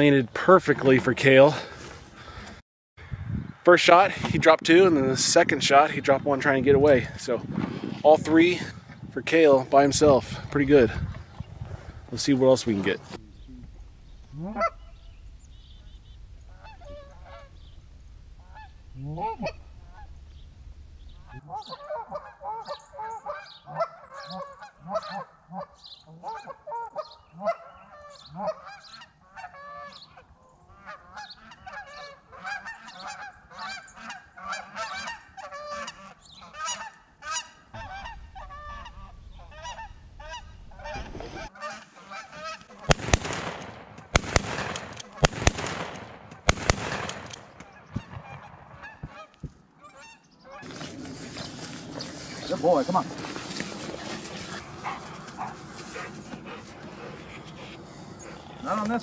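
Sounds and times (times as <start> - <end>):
wind rumble on microphone: 3.0 - 12.1
geese honking: 14.2 - 43.0, 47.6 - 59.0.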